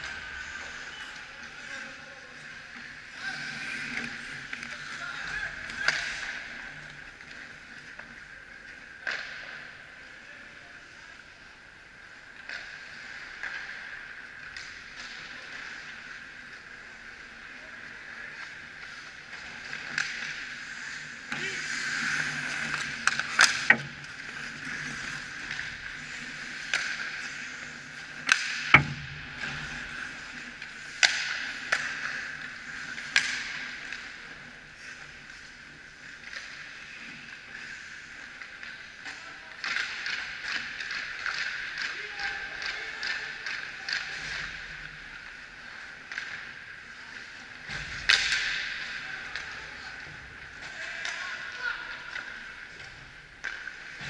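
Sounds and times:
hockey sticks and puck clacking: 0.0s - 10.2s, 12.0s - 54.0s
skate blades scraping on ice: 14.8s - 28.7s.

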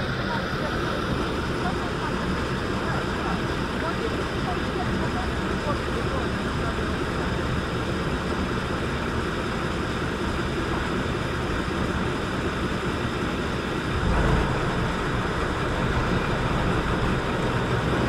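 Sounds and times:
ship engine running: 0.0s - 18.0s
water noise: 0.0s - 18.0s
wind: 0.0s - 18.0s
deep loud rumble: 6.4s - 18.0s.

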